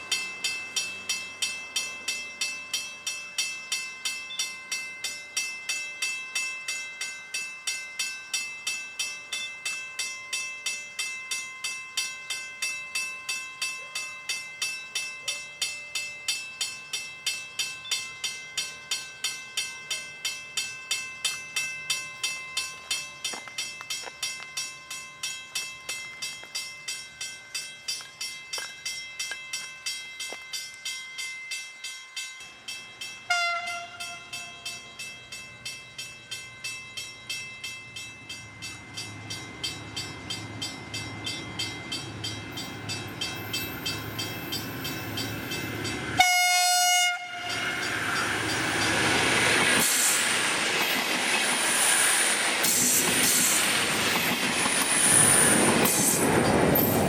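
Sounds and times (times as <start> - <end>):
level crossing bell ringing: 0.0 - 49.8
diesel train running: 0.0 - 57.0
train horn blast: 33.3 - 34.3, 46.2 - 47.6.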